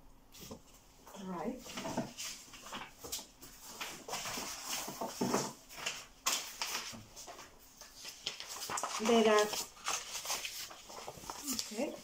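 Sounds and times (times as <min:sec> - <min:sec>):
paper rustling: 0:01.6 - 0:12.0
paper crackle: 0:01.7 - 0:12.0.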